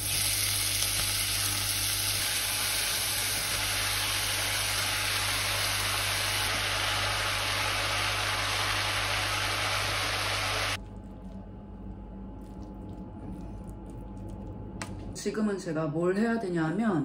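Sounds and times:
vegetables sizzling in a frying pan: 0.0 - 10.8
quiet low hum: 10.8 - 15.2.

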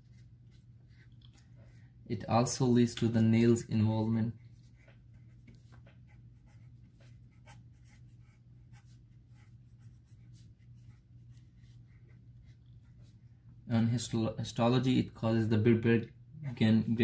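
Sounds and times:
low steady hum: 0.0 - 17.0
pen scratching on paper: 4.5 - 13.1.

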